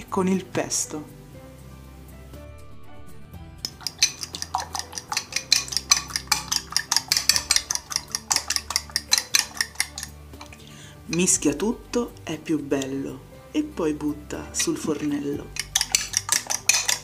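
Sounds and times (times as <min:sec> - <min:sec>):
fork clinking against glass bowl: 0:03.6 - 0:11.4, 0:14.6 - 0:17.0.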